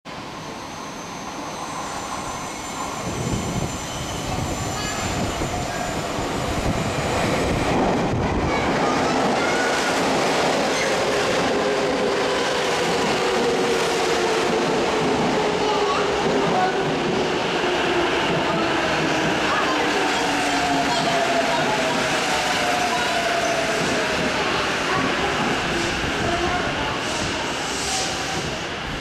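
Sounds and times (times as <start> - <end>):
subway train wheel squeals: 0.1 - 29.0
train wheels rumbling: 2.2 - 29.0.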